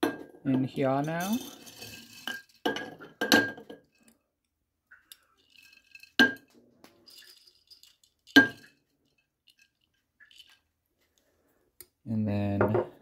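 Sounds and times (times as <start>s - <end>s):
glass jars clinking: 0.0s - 4.1s, 5.0s - 10.6s
wet grains rattling: 6.9s - 10.7s.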